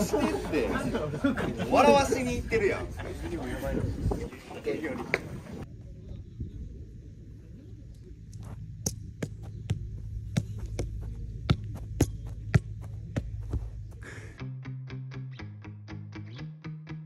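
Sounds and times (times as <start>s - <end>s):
low throbbing hum: 5.6s - 14.5s.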